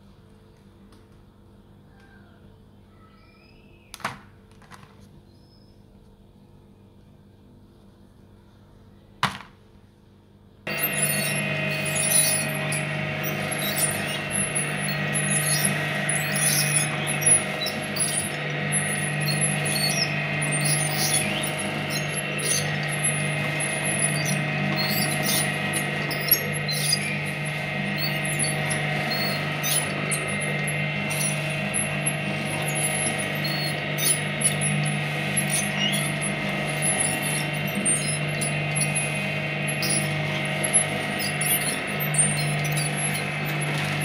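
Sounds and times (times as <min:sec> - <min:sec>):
cookies crackling and squeaking: 0:10.7 - 0:44.0
shredder humming and whining: 0:10.7 - 0:44.0.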